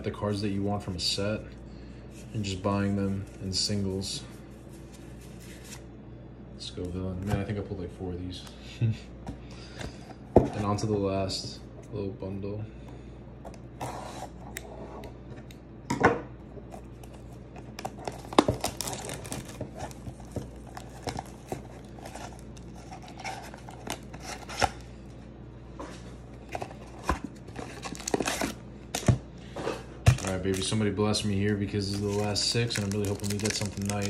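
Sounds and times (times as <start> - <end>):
plastic wrap crinkling and tearing: 17.7 - 24.8, 27.5 - 28.6, 30.1 - 30.8, 31.4 - 34.0
scissors snipping plastic wrap: 17.8 - 21.3, 31.9 - 34.0.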